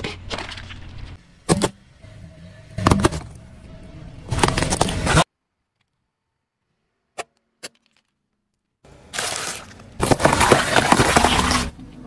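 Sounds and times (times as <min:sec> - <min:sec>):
car tyre crushing peppers: 0:09.1 - 0:11.8.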